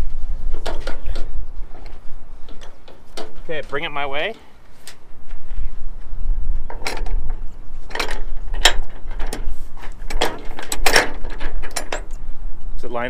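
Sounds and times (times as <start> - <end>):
wind rumbling on microphone: 0.0 - 13.0
metal fitting clanking: 7.9 - 12.2.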